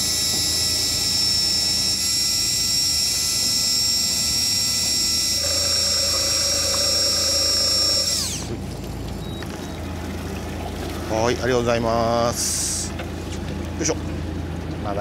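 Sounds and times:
fishing reel motor whining: 0.0s - 8.6s.

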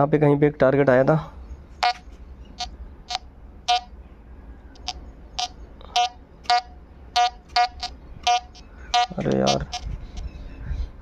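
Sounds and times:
metal detector short beeps: 1.8s - 2.0s, 2.6s - 3.9s, 4.8s - 9.9s.

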